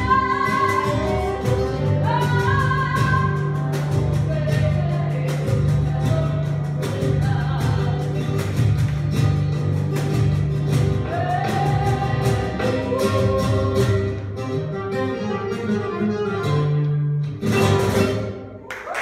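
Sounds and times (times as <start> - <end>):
person singing: 0.0 - 8.4, 11.0 - 14.2
guitar accompaniment: 0.0 - 18.9.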